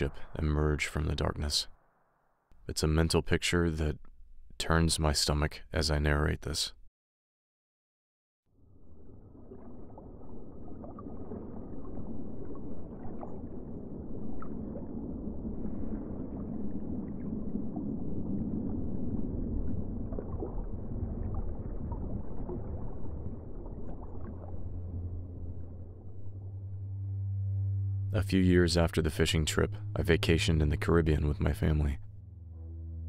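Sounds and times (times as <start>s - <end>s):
muffled underwater rumble: 0.0s - 1.6s, 8.6s - 33.0s.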